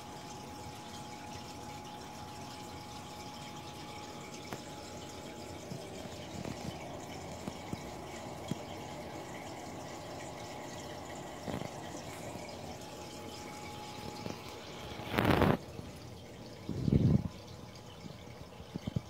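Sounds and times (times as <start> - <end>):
faint steady hum: 0.0 - 19.0
water trickling and dripping: 0.0 - 19.0.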